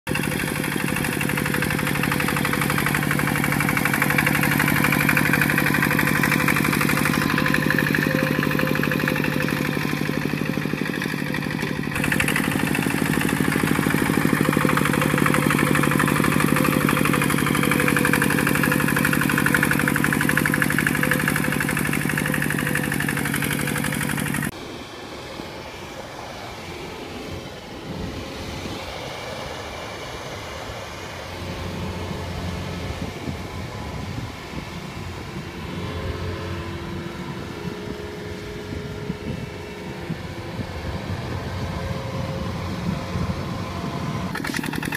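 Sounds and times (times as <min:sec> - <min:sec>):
distant machine running: 0:00.1 - 0:24.6
walking tractor diesel engine: 0:00.1 - 0:24.6, 0:25.9 - 0:44.9.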